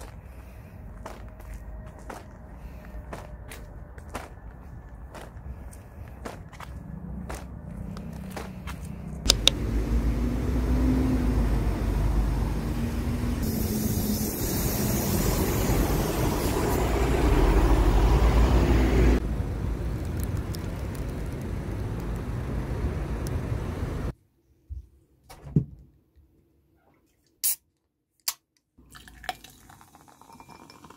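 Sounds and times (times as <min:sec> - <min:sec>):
bus engine rumble: 0:00.0 - 0:24.1
road traffic: 0:00.0 - 0:24.2.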